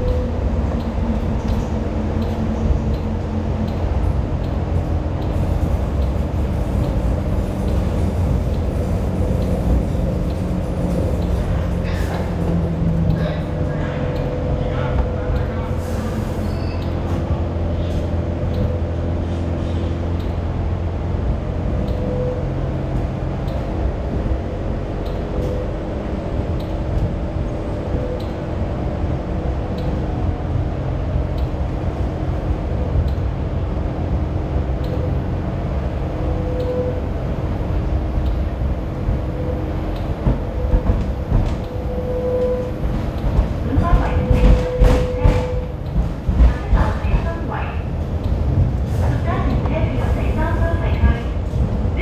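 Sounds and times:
train wheels rumbling on rail: 0.0s - 52.0s.

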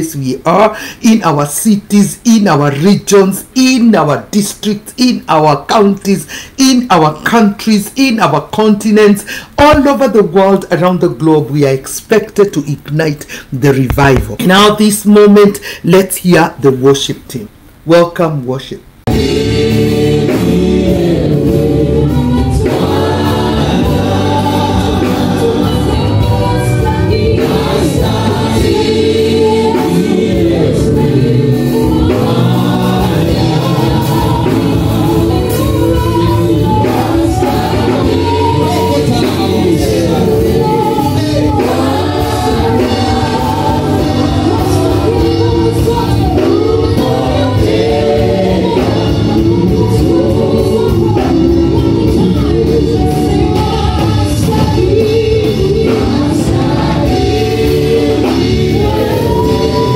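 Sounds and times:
choir singing gospel song: 19.1s - 59.9s
congregation singing along: 19.1s - 59.9s.

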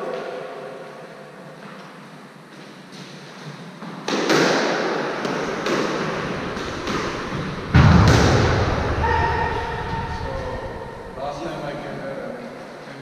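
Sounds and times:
squash ball thwacks echoing: 4.0s - 10.0s
heavy thud: 6.3s - 11.5s.

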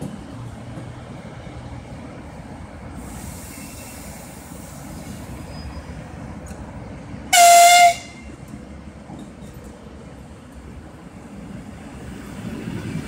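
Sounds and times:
electric train horn blast: 7.3s - 8.3s.

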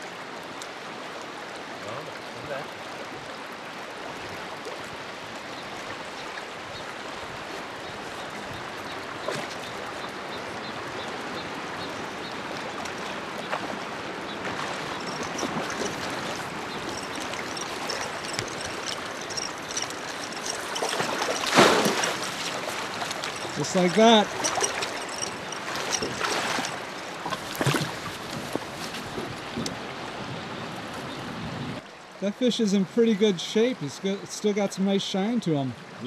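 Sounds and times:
river current rushing: 0.0s - 33.1s.

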